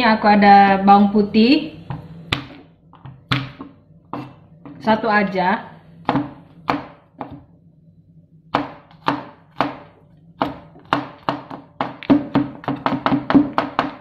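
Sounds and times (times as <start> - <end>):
knife chopping on cutting board: 1.9 - 4.8, 6.0 - 7.5, 8.5 - 14.0.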